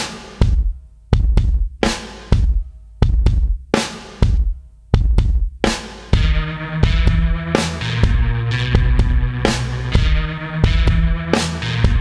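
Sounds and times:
bass drum strokes: 6.2 - 12.0.

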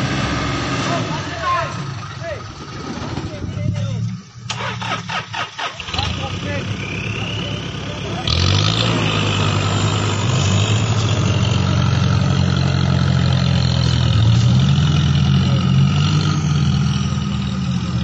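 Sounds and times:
off-road vehicle engine revving: 0.0 - 18.0.

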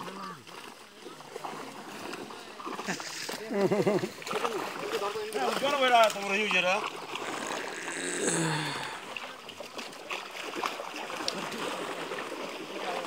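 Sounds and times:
water splashing and trickling: 0.0 - 13.0
water dripping: 2.8 - 12.5.

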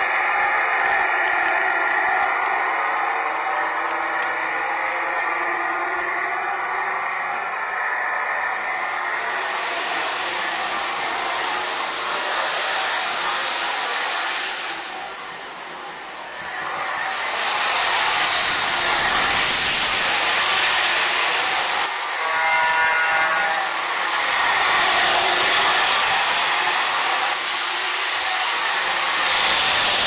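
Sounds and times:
model train jet whooshing hiss: 8.4 - 30.0.

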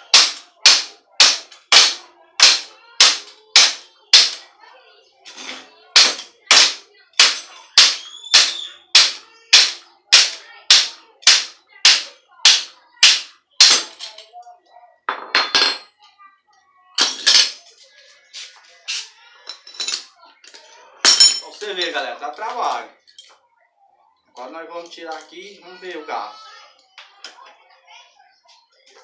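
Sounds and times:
hammer striking metal: 0.1 - 4.4, 6.0 - 13.9.

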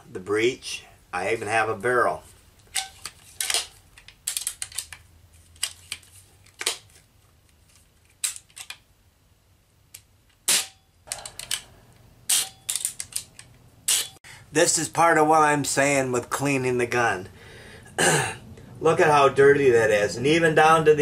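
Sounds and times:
air pistol parts clacking: 2.6 - 8.8, 9.9 - 14.2.

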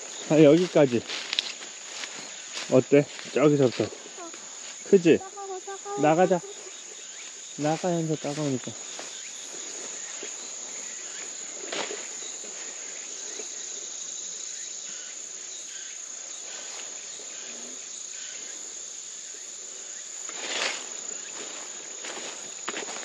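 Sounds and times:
rustling through leafy undergrowth: 0.0 - 13.6, 20.3 - 23.0
insects chirping: 0.0 - 23.0.

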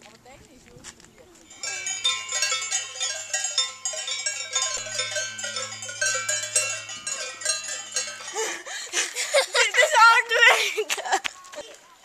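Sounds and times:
cowbells clanging: 1.4 - 10.6.

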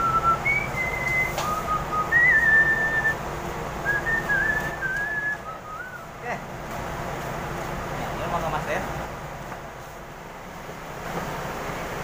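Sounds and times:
person whistling a tune: 0.0 - 3.2, 3.8 - 6.1.

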